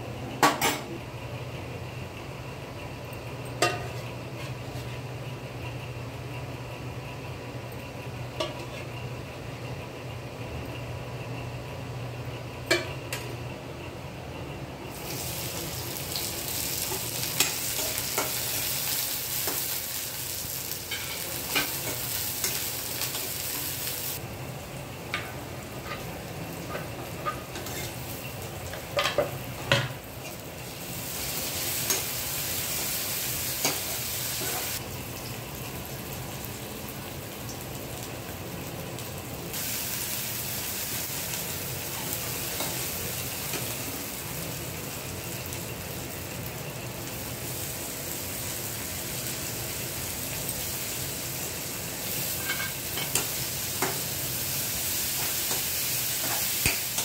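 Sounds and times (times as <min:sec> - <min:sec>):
onions sizzling in hot oil: 0:14.9 - 0:57.0
spatula scraping and clicking on pan: 0:26.7 - 0:28.0.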